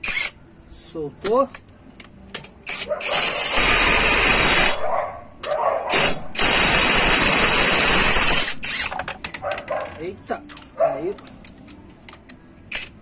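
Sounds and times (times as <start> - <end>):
impact wrench hammering: 5.9 - 9.0.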